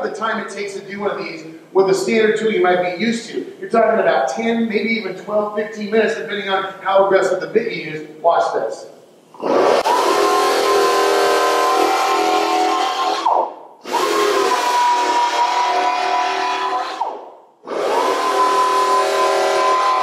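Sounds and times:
air-powered sander whining: 9.4 - 20.0.

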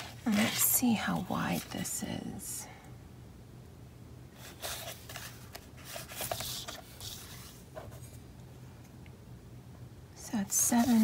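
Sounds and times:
cardstock rustling and scraping: 0.0 - 1.8, 4.4 - 8.2, 10.5 - 11.0.

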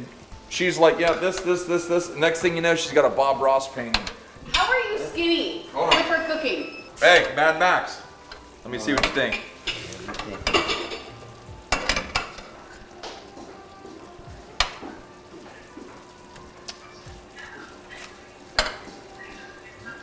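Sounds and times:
food sizzling in a pan: 0.0 - 20.0
utensils clinking against dishes: 0.8 - 2.6, 3.5 - 4.8, 5.8 - 7.5, 8.3 - 13.3, 16.7 - 20.0.

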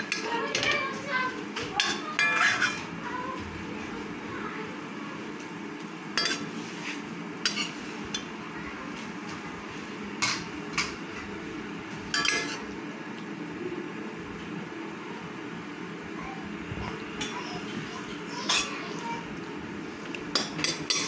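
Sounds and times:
metal spatula scraping steel wok: 2.2 - 2.9, 6.2 - 7.8.

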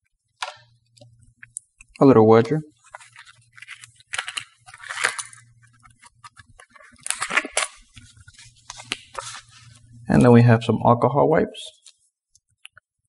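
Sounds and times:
plastic bag crinkling: 2.8 - 9.9.

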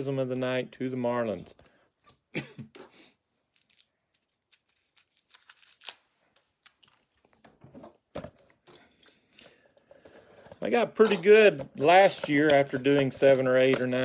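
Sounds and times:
rustling of cards and packaging: 3.4 - 14.0.

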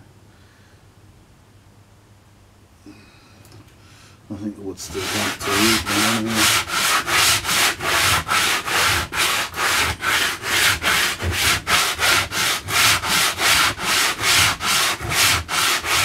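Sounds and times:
sandpaper rasping on wood: 4.8 - 16.0.

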